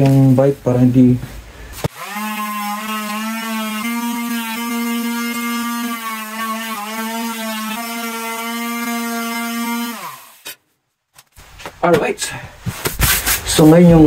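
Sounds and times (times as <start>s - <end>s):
electric sander on metal: 1.9s - 10.4s.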